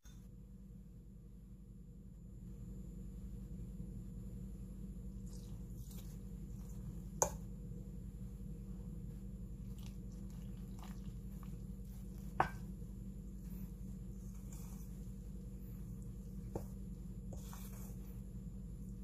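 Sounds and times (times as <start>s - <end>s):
steady low hum: 0.0s - 19.0s
spoon stirring batter: 5.2s - 7.5s, 9.6s - 19.0s.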